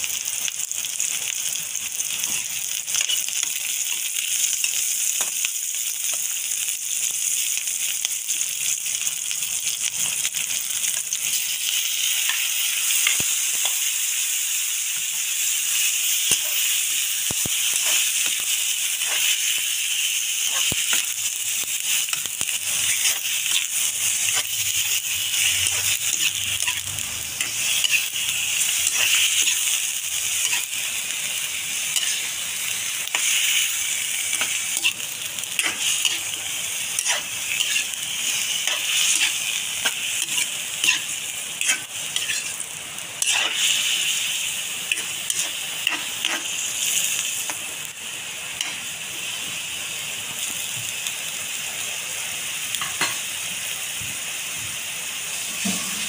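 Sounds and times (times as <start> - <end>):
food sizzling in a wok: 0.0 - 56.0
spatula scraping a pan: 22.2 - 23.6, 37.0 - 42.6, 43.2 - 43.9.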